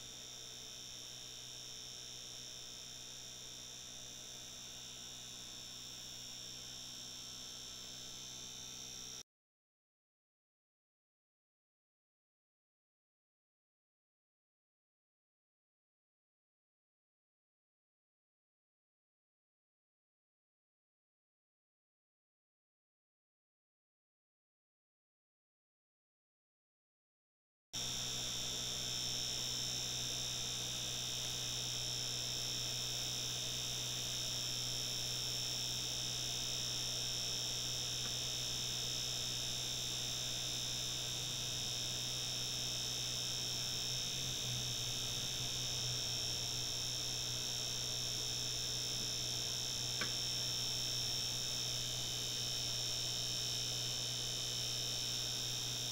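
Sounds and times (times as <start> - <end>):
computer fan whining: 27.8 - 55.9.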